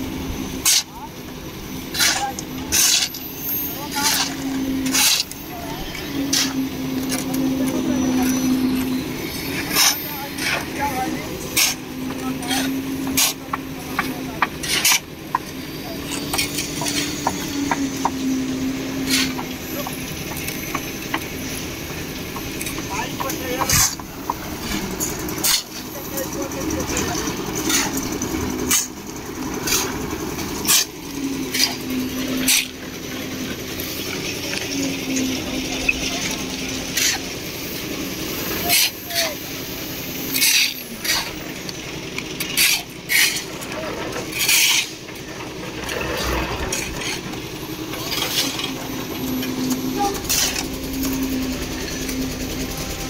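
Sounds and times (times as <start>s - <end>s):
concrete mixer humming: 0.0s - 53.0s
engine drone: 0.0s - 53.0s
sharp scraping knocks: 1.9s - 5.4s, 42.4s - 52.8s.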